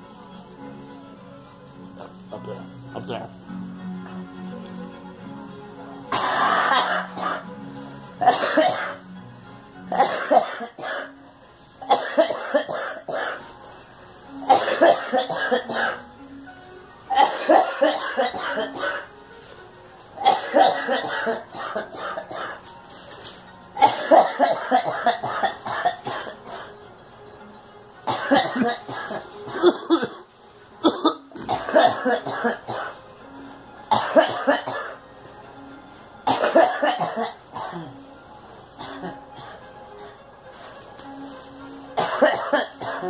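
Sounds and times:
woman coughing: 0:06.1 - 0:07.4, 0:08.2 - 0:09.0, 0:09.9 - 0:11.1, 0:11.9 - 0:13.4, 0:14.5 - 0:16.0, 0:17.1 - 0:19.1, 0:20.2 - 0:22.6, 0:23.8 - 0:26.6, 0:28.1 - 0:30.2, 0:30.8 - 0:33.0, 0:33.9 - 0:35.0, 0:36.3 - 0:38.0, 0:42.0 - 0:43.0.

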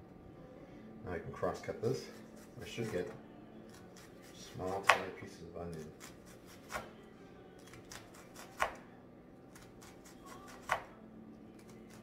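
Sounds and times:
knife chopping on plastic board: 0:04.7 - 0:05.2, 0:06.0 - 0:06.9, 0:07.7 - 0:08.8, 0:09.6 - 0:10.9.

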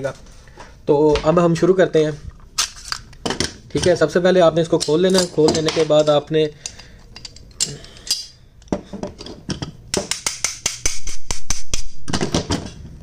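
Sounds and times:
metal pistol parts clicking: 0:06.0 - 0:08.7.

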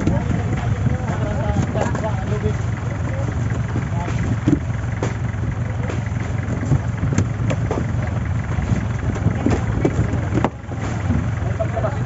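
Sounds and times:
boat engine idling: 0:00.0 - 0:12.0
knocks and clatter on deck: 0:03.2 - 0:05.2, 0:08.7 - 0:11.2.

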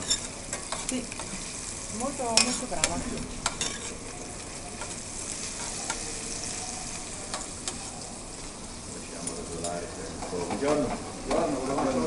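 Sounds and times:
utensils clicking against pan: 0:00.0 - 0:01.4, 0:02.2 - 0:04.0, 0:07.3 - 0:07.9
food sizzling in a pan: 0:00.0 - 0:12.0.

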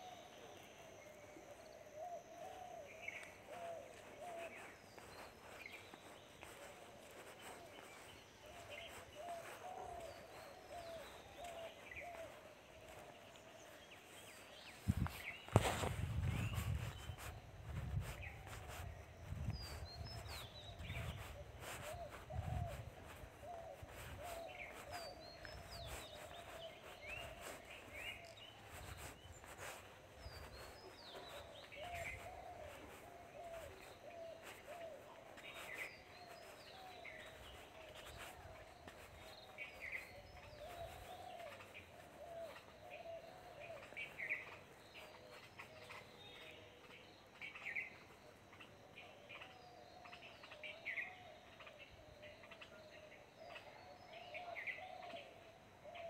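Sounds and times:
warbling bird chatter: 0:02.3 - 0:46.5.

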